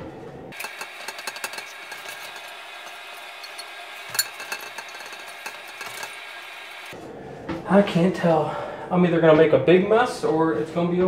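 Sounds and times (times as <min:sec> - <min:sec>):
clicks and clinks of toilet fittings: 0:00.5 - 0:06.9.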